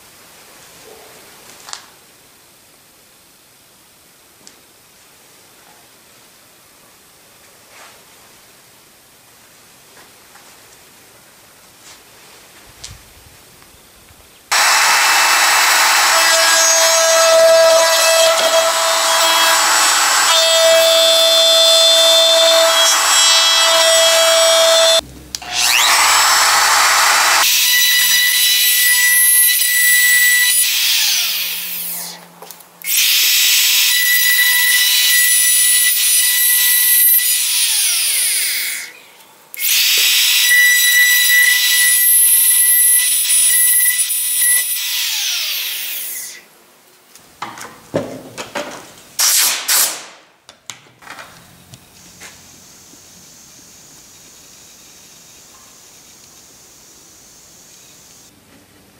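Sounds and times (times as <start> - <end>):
router whining cutting wood: 14.5 - 32.2, 32.8 - 38.9, 39.6 - 46.4.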